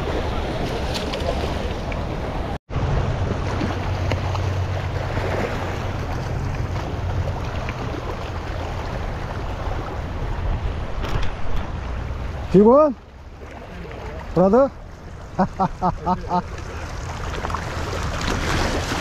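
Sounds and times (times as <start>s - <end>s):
water washing against rocks: 16.2s - 19.0s.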